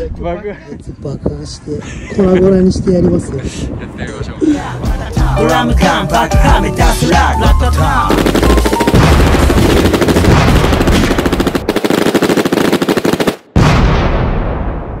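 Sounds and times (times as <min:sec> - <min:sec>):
machine-gun fire: 0:08.0 - 0:15.0
explosion: 0:09.0 - 0:11.6, 0:13.5 - 0:15.0.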